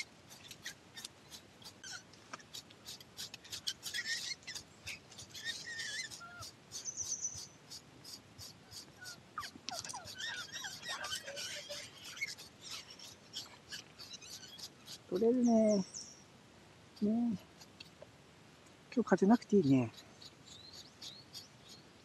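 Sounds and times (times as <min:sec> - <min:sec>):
dog whining: 0:09.0 - 0:12.3.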